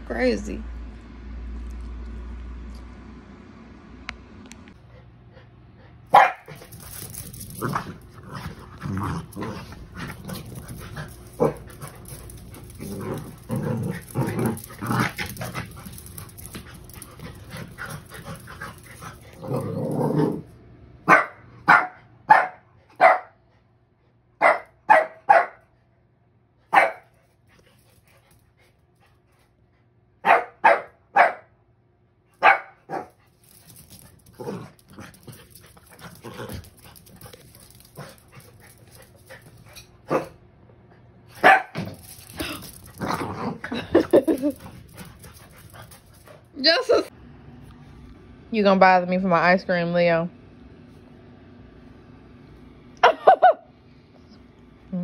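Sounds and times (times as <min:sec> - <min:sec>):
dogs barking sharply: 0:06.1 - 0:06.8, 0:21.0 - 0:23.4, 0:24.4 - 0:25.7, 0:26.7 - 0:27.1, 0:30.2 - 0:31.5, 0:32.4 - 0:33.2, 0:40.0 - 0:40.4, 0:41.3 - 0:42.6
dogs scuffling: 0:06.1 - 0:20.0, 0:32.9 - 0:40.0, 0:41.3 - 0:46.7
dogs growling: 0:06.4 - 0:20.6, 0:32.9 - 0:40.3, 0:41.8 - 0:46.5.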